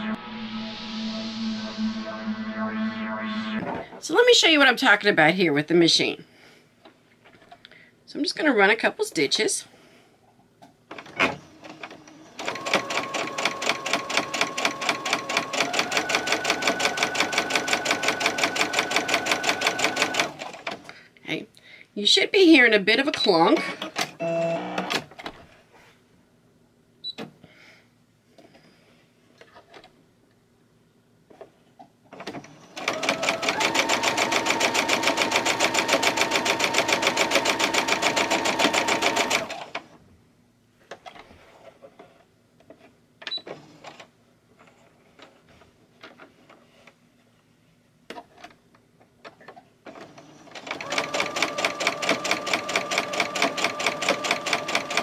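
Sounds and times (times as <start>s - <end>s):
sewing machine stitching: 10.9s - 20.8s, 32.2s - 39.8s, 49.9s - 55.0s.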